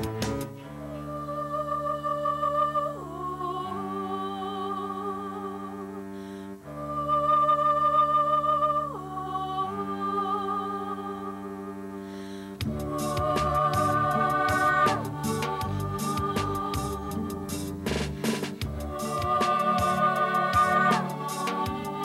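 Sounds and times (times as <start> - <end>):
slow instrumental music: 0.0 - 22.0.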